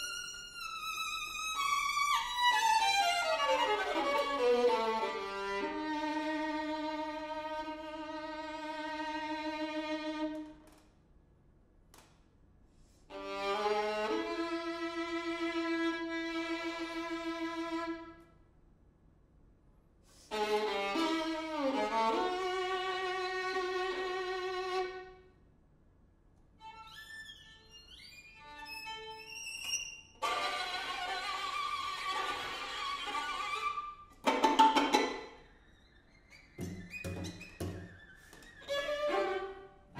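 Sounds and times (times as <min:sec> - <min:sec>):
string quartet playing: 0:00.0 - 0:10.5, 0:13.1 - 0:18.0, 0:20.3 - 0:25.1, 0:30.2 - 0:35.4, 0:38.6 - 0:39.9.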